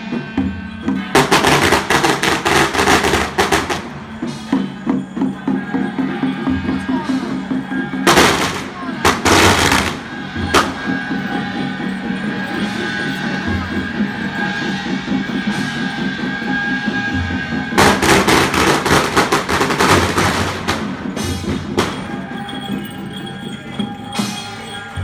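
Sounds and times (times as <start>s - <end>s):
procession music with low beat: 0.0s - 25.0s
firecrackers crackling: 1.0s - 4.7s, 8.0s - 13.2s, 17.7s - 24.8s.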